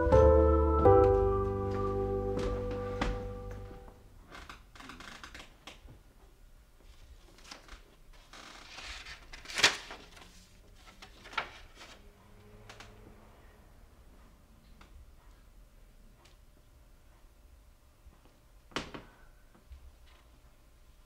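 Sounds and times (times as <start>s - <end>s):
paper rustling: 6.9s - 12.0s.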